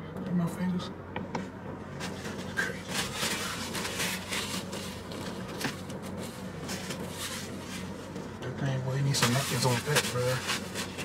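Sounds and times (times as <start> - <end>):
low hum: 0.0 - 11.0
paper napkins rustling: 2.0 - 8.1, 9.2 - 11.0.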